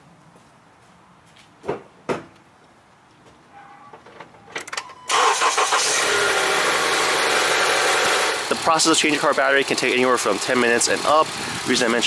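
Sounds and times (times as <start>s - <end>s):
car engine cranking and starting: 5.1s - 12.0s
car engine running loudly: 5.7s - 11.8s.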